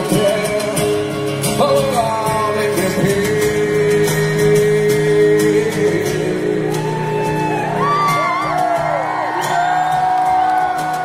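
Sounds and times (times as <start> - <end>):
acoustic guitars strumming: 0.0 - 11.0
acoustic rock band playing: 0.0 - 11.0
voices whooping and calling out: 6.6 - 11.0.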